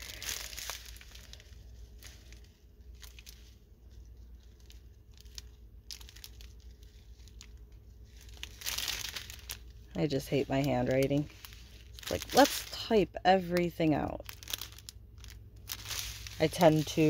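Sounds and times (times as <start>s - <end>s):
plastic bags crinkling: 0.0s - 17.0s.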